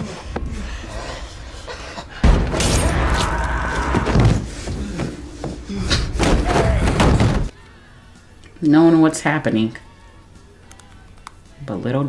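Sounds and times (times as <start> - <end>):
impacts and struggle noises: 0.0 - 7.5
loud slam: 2.2 - 7.5.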